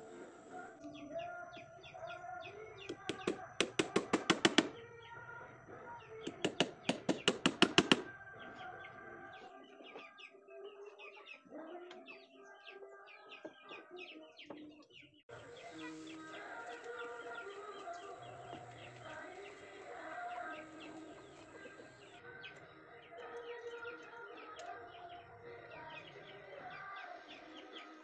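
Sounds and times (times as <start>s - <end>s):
birds chirping: 0.0s - 28.0s
hammer striking wood: 2.9s - 4.8s, 6.3s - 8.1s.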